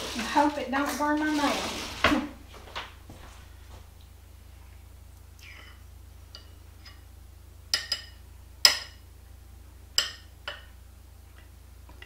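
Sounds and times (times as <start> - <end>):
metal spoon clinking on ceramic bowl: 7.7 - 9.0, 10.0 - 10.7.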